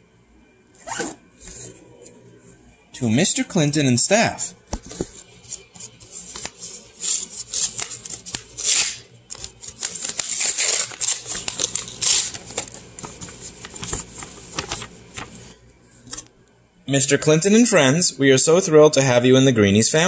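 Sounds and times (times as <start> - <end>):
paper crinkling and rustling: 4.7 - 16.3.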